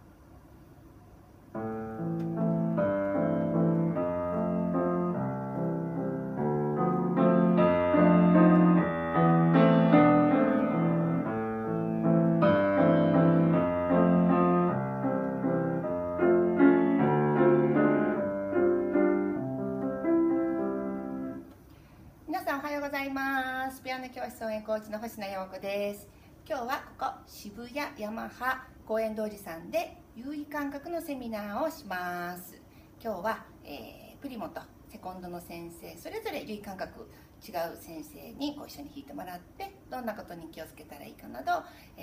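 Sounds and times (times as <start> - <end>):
solo piano piece: 1.5 - 21.5.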